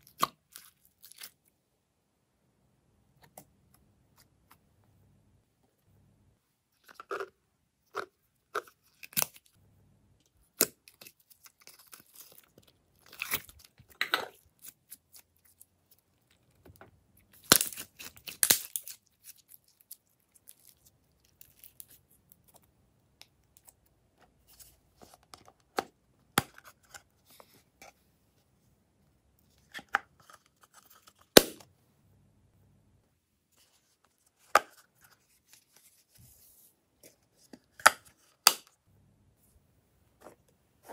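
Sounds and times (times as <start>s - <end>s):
slime popping and crackling: 17.4s - 19.0s.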